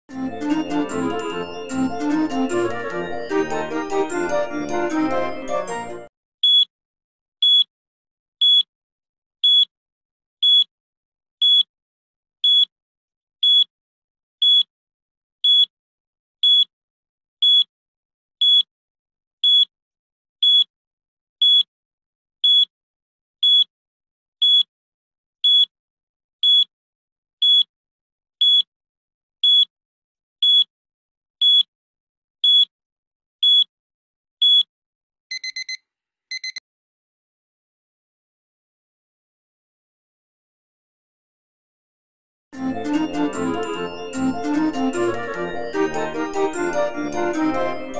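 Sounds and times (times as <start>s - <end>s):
high-pitched timer beeps: 6.4s - 6.7s, 7.4s - 7.7s, 10.4s - 10.7s, 35.3s - 36.6s.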